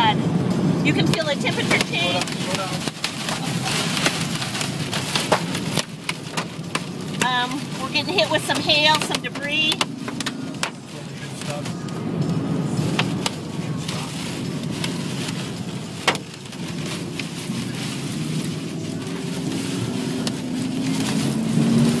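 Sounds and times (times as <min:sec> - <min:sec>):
road and wind noise inside car: 0:00.0 - 0:22.0
hail striking car: 0:00.9 - 0:11.9, 0:12.6 - 0:18.5.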